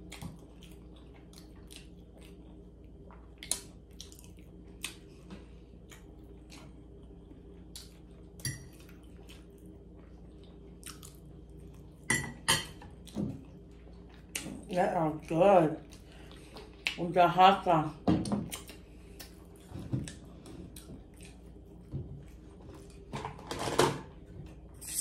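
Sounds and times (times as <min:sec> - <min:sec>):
person chewing food: 0:00.0 - 0:12.1, 0:12.8 - 0:14.7, 0:15.8 - 0:17.0, 0:18.4 - 0:23.1.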